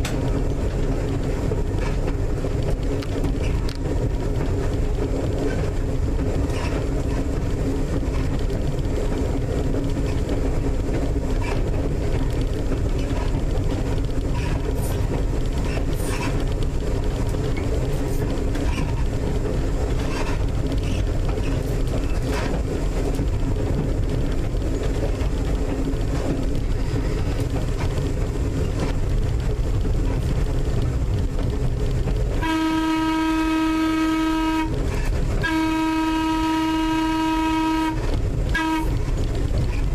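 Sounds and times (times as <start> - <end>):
electric train rumbling on track: 0.0 - 39.9
train air horn blast: 32.4 - 34.8, 35.4 - 39.0.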